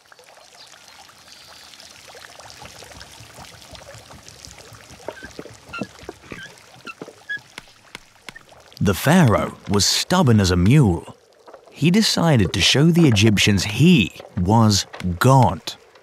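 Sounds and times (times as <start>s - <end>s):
watery hiss with small clicks: 1.2s - 9.8s.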